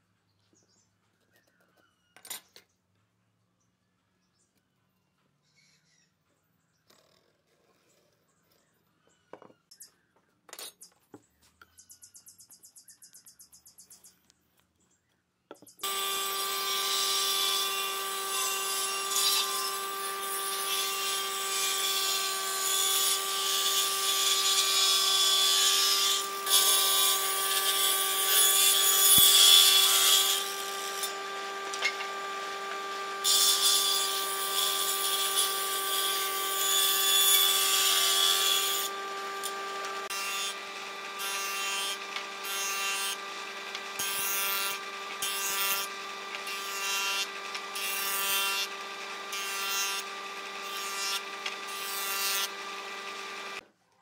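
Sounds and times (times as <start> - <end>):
saw blade cutting timber: 15.8 - 53.6
table saw motor hum: 15.8 - 53.6.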